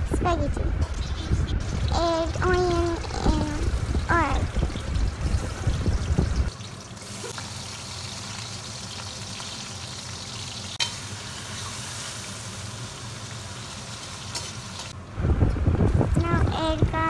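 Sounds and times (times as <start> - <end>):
low rumble: 0.0 - 6.5
onions sizzling in oil: 1.0 - 15.0.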